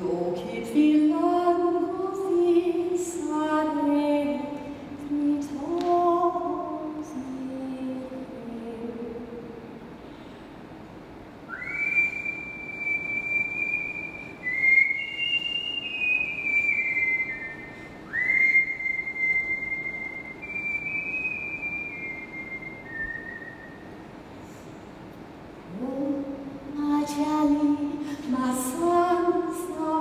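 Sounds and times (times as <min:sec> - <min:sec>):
whistled melody: 0:11.5 - 0:23.9.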